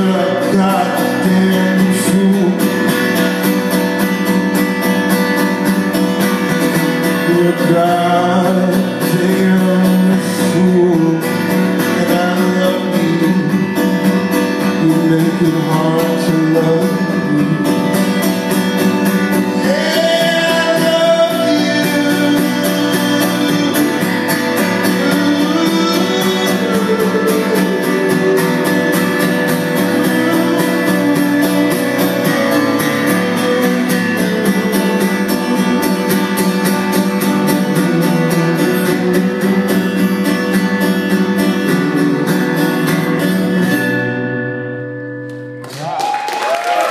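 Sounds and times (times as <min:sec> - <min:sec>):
man singing: 0:00.0 - 0:03.5, 0:06.9 - 0:44.2
acoustic guitar strumming: 0:00.0 - 0:45.9.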